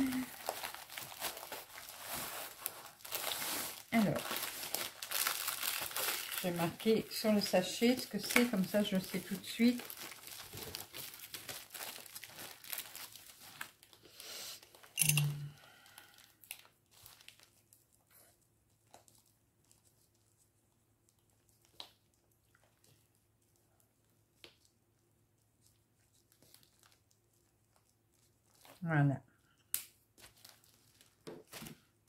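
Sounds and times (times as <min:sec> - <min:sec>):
plastic packaging crinkling: 0:00.0 - 0:15.0, 0:15.8 - 0:18.0, 0:25.6 - 0:28.8, 0:30.2 - 0:31.8.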